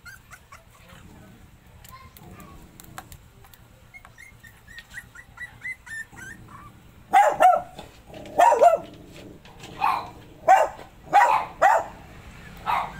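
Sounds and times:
dog barking: 0:07.1 - 0:07.8, 0:08.4 - 0:08.9, 0:09.8 - 0:12.9.

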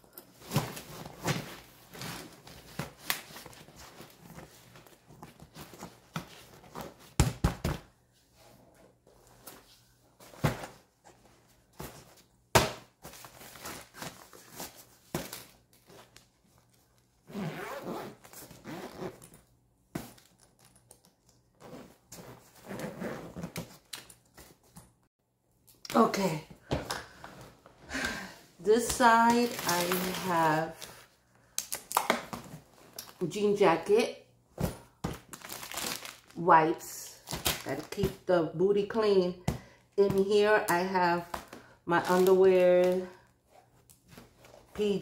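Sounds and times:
zipper being worked: 0:17.3 - 0:19.3, 0:21.6 - 0:23.6.

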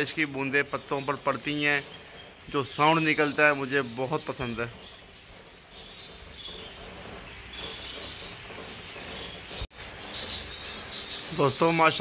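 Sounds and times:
light rain on leaves and roof: 0:00.0 - 0:12.0.

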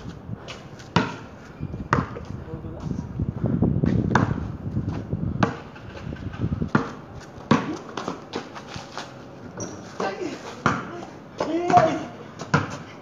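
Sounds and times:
basketball bouncing on concrete: 0:00.5 - 0:02.3, 0:03.8 - 0:08.6, 0:09.6 - 0:12.9
sneakers scuffing on concrete: 0:06.7 - 0:12.9.

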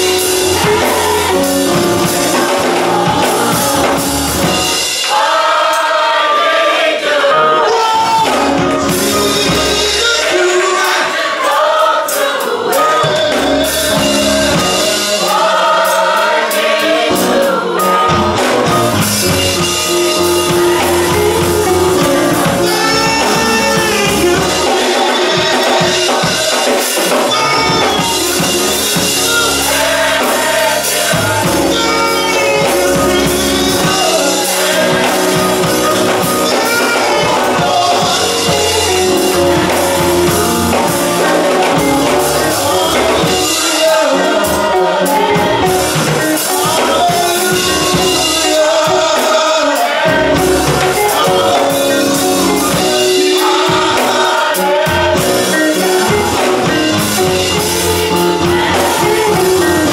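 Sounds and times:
bass line: 0:00.0 - 0:04.8, 0:13.2 - 0:15.0, 0:18.0 - 0:26.5, 0:27.1 - 0:43.7, 0:44.4 - 0:48.6, 0:50.1 - 0:54.0, 0:54.8 - 0:59.9
band accompanying: 0:00.0 - 0:59.9
gospel choir singing: 0:00.0 - 0:59.9.

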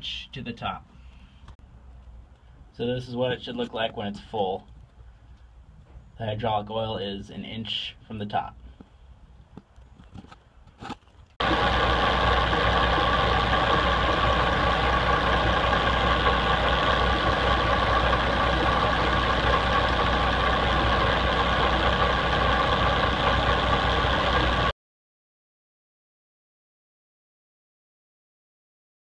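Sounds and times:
boat engine running: 0:11.4 - 0:24.7.

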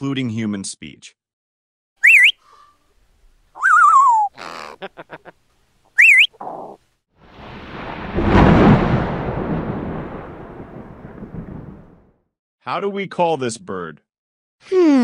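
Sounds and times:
parrot whistling and chirping: 0:02.0 - 0:02.6, 0:03.6 - 0:04.8, 0:05.9 - 0:06.8
thunder rumbling: 0:07.2 - 0:12.2.

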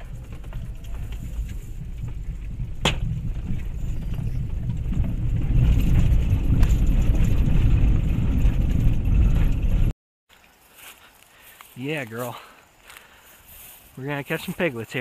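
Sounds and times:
car engine and tyre rumble: 0:00.0 - 0:09.9.

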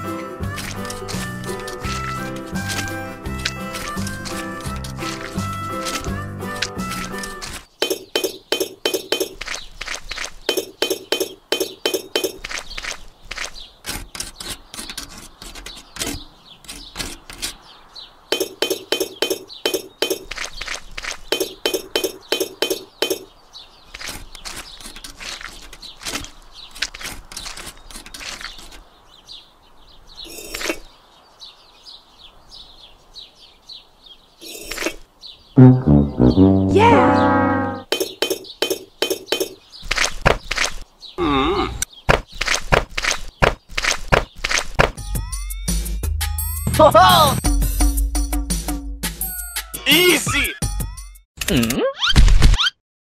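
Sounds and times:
miniature bricks clinking: 0:00.5 - 0:06.2.

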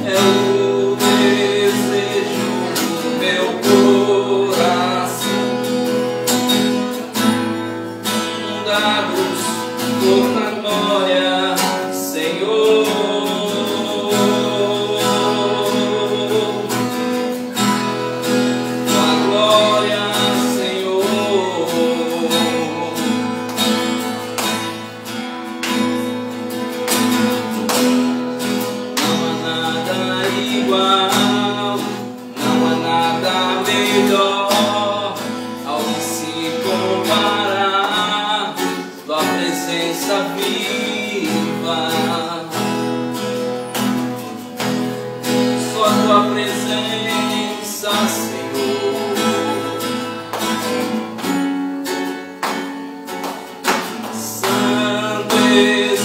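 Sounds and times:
acoustic guitar strummed: 0:00.0 - 0:56.0.

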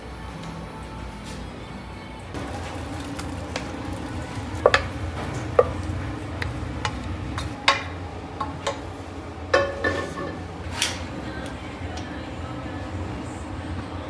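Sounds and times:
kitchenware clinking and knocking: 0:09.5 - 0:10.4.

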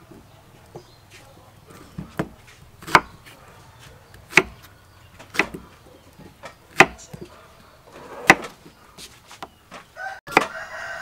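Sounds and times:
knife striking chopping board: 0:06.7 - 0:07.3, 0:10.3 - 0:10.5.

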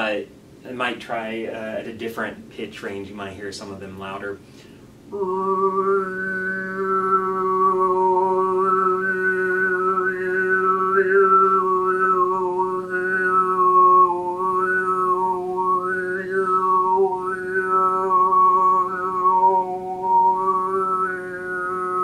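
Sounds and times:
man overtone singing: 0:05.1 - 0:22.0.

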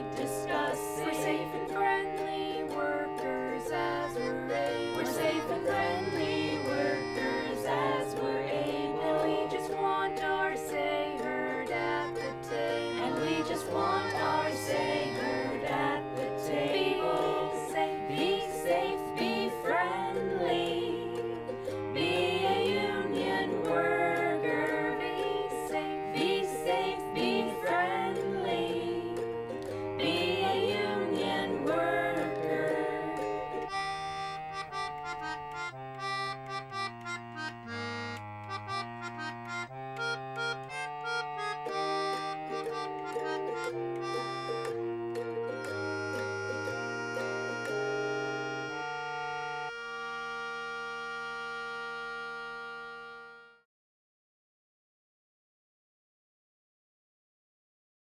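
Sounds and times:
group of voices singing: 0:00.0 - 0:33.8
plucked string bass line: 0:00.0 - 0:53.4.

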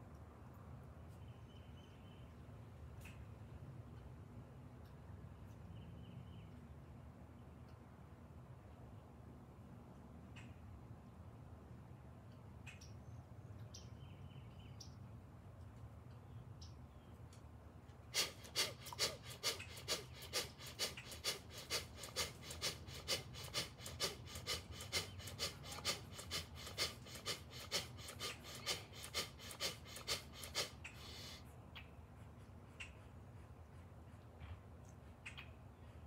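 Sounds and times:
rapid forceful breaths: 0:18.1 - 0:31.6.

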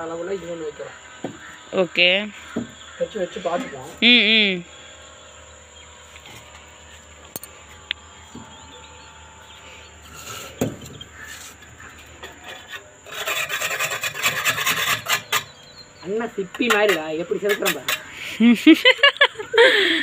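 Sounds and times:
gritty scraping on brick: 0:10.0 - 0:18.1.

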